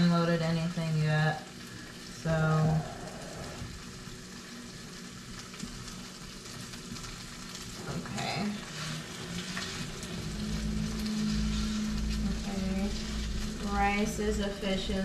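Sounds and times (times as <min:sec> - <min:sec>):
low steady hum: 0:00.0 - 0:15.0
rice sizzling in a pan: 0:00.0 - 0:15.0
spatula scraping a pan: 0:08.6 - 0:14.0.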